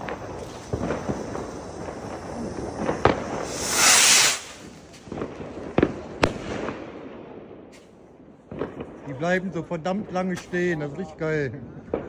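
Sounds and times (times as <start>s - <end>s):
firework rocket hissing: 0.0s - 5.9s
firework bangs: 0.0s - 10.7s.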